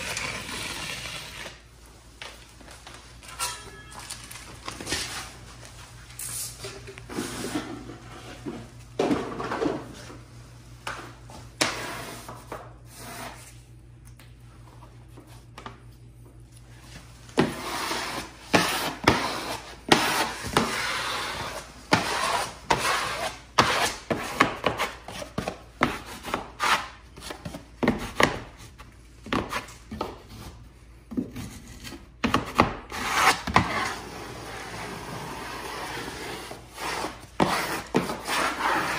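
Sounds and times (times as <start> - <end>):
wallpaper rubbing and scraping: 0.0 - 1.7, 16.8 - 27.4, 32.9 - 38.9.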